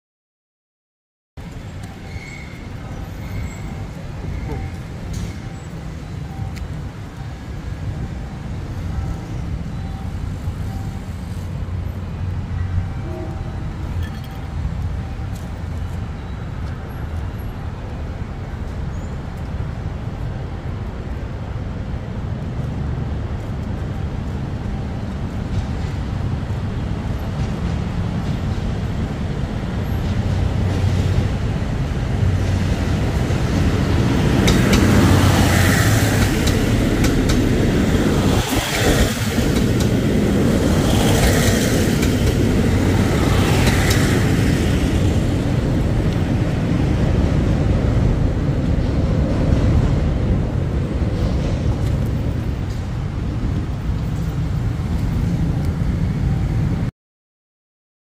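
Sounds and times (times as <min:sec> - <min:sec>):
diesel train passing: 0:01.4 - 0:56.9.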